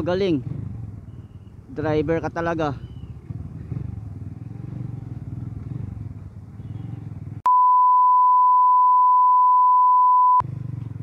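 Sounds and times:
motorcycle engine humming: 0.0 - 7.7, 10.4 - 11.0
steady beep tone: 7.5 - 10.4.

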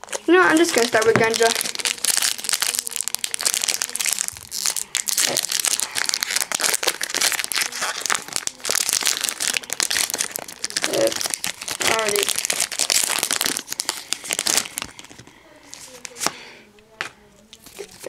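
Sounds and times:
foil wrapper crinkling: 0.0 - 16.3.

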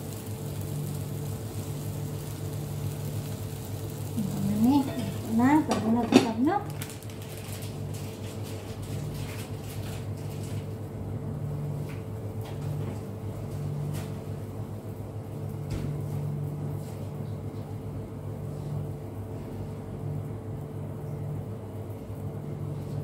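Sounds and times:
steady low hum: 0.0 - 7.1
eggs popping and crackling in pan: 0.0 - 10.2.

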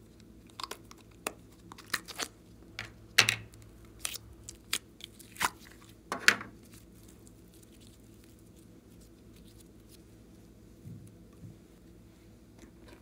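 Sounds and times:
sticky slime crackle: 0.0 - 2.5, 3.5 - 6.0, 6.6 - 10.0.

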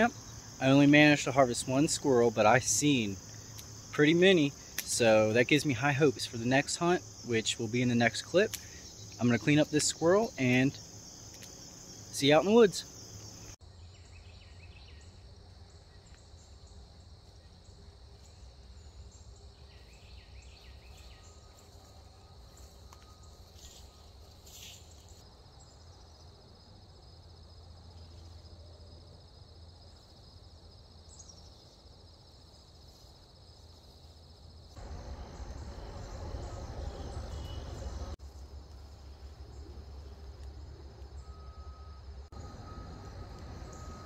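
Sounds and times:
insect chorus trilling: 0.0 - 44.0
bird chirps: 34.8 - 38.2.

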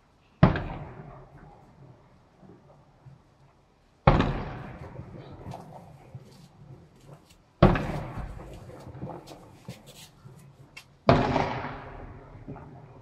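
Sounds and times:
fireworks bursting with echo: 0.4 - 1.9, 4.0 - 7.0, 7.6 - 9.8, 11.0 - 13.0
fireworks crackling: 4.2 - 12.8.

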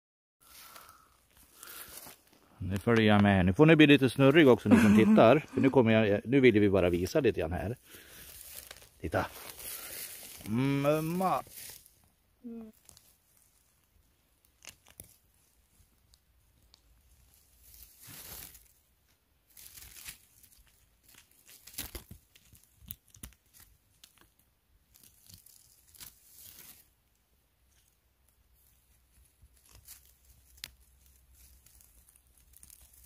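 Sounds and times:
rustling and crackling of forest litter: 0.4 - 3.2, 7.0 - 33.0
twigs snapping: 8.2 - 10.5, 14.4 - 15.2, 19.6 - 26.9, 28.6 - 33.0.

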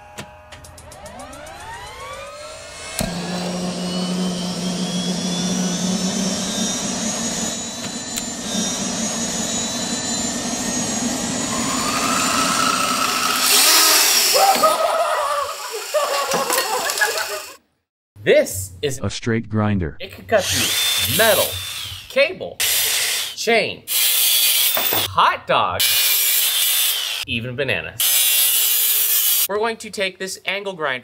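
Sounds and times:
rotary tool motor whine: 0.9 - 17.6, 20.4 - 25.1
rotor air rush: 2.0 - 14.4.

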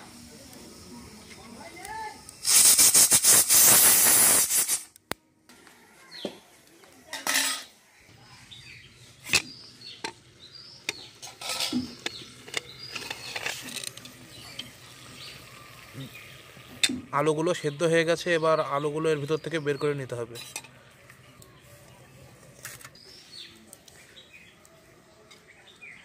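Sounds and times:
pressure cooker hiss: 0.0 - 5.0, 9.3 - 17.1
metal clinks and scrapes: 7.1 - 7.7, 11.2 - 14.2.

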